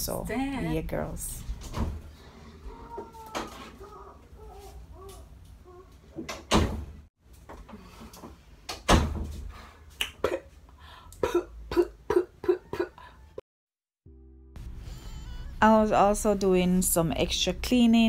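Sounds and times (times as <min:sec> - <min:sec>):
interior door thudding: 0:06.2 - 0:07.1, 0:08.8 - 0:09.5.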